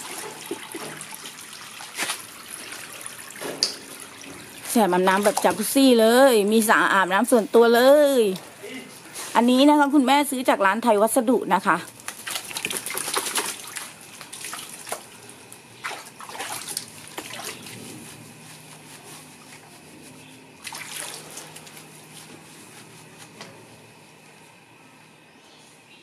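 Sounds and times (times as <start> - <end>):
water splashing in a plastic tub: 0.0 - 6.9, 11.7 - 17.9, 20.6 - 22.1.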